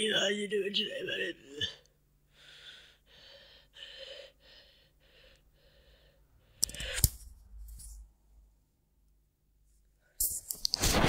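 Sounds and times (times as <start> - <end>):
person breathing in puffs: 2.3 - 7.3.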